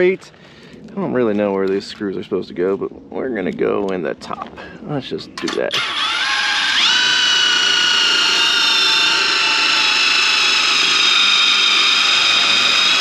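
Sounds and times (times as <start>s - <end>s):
cordless drill driving screw into metal: 5.7s - 13.0s.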